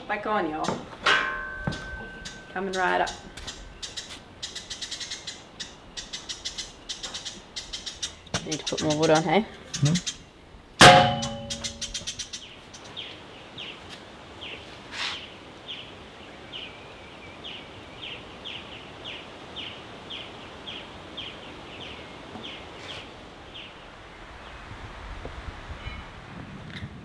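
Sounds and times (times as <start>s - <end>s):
sharp knock: 10.8s - 12.1s
bird calling high falling notes: 10.9s - 12.2s.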